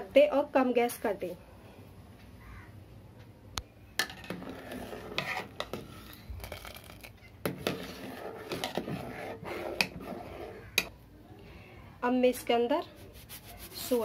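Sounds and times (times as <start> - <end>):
spoon stirring in metal pot: 4.0 - 10.9.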